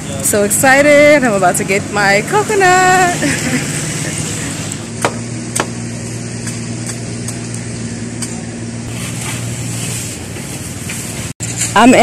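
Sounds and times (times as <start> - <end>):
blade chopping coconut: 4.9 - 5.8.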